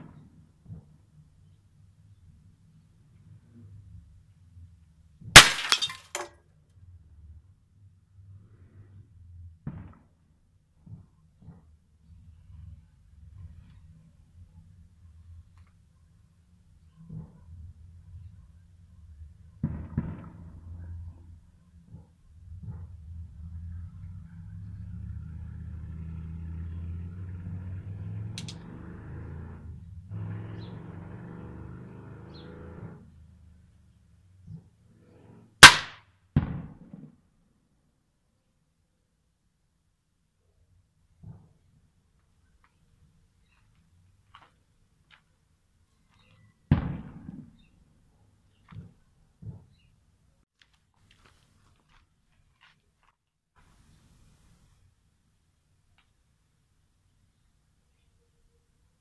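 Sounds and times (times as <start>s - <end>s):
pellet hitting bottle crack: 5.4s - 6.2s
vehicle engine running: 22.5s - 33.7s.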